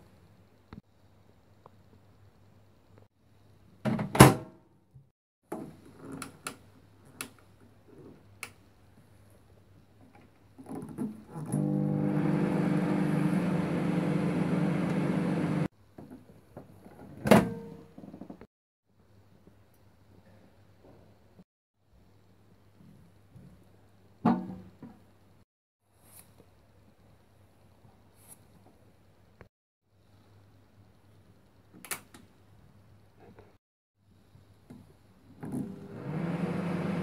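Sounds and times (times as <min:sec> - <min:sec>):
microwave oven humming: 0:11.6 - 0:15.7.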